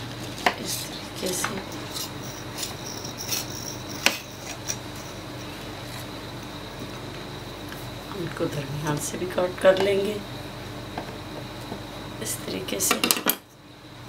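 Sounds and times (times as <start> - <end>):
steady low hum: 0.0 - 14.0
knife scraping against steel ruler: 1.8 - 5.2.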